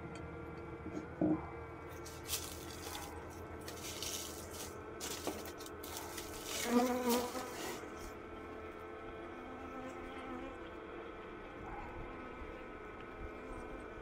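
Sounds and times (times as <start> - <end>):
bees humming in a hive: 0.1 - 14.0
bee buzzing close by: 5.8 - 8.2, 8.8 - 14.0.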